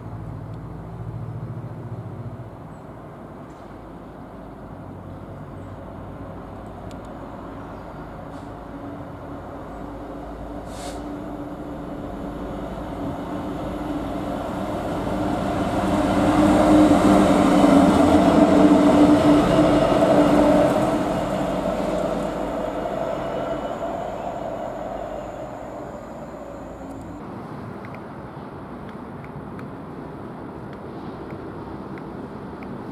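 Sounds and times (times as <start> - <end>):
diesel locomotive engine drone: 0.0 - 28.8
train wheel noise: 10.0 - 27.2.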